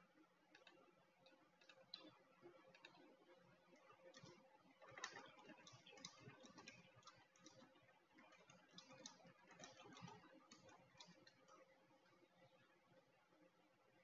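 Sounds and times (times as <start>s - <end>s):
typing on computer keyboard: 3.8s - 11.6s.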